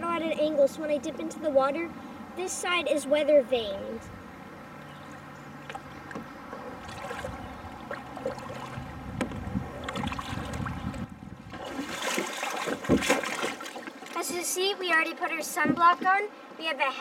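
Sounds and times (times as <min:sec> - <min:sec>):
water sloshing: 0:04.8 - 0:16.0
paddle strokes splashing: 0:05.1 - 0:14.6.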